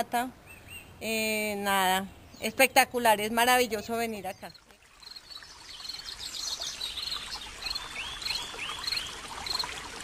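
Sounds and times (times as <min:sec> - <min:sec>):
bird chirping: 0:00.4 - 0:01.1, 0:03.7 - 0:09.8.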